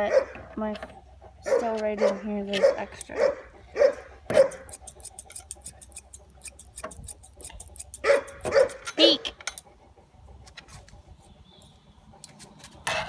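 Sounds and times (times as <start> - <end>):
dog barking: 0.0 - 0.4, 1.4 - 4.7, 8.0 - 8.9
shears snipping hair: 4.3 - 9.3.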